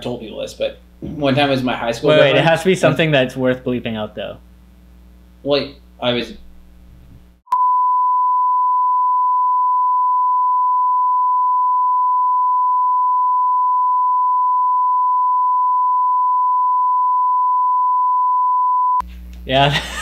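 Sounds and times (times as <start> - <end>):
censor bleep tone: 7.5 - 19.0.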